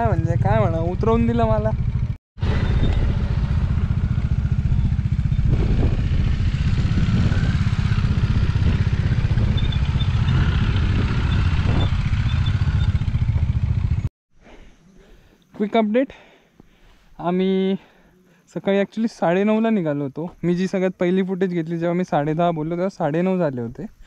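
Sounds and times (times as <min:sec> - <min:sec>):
motorcycle engine running: 0:00.0 - 0:14.1.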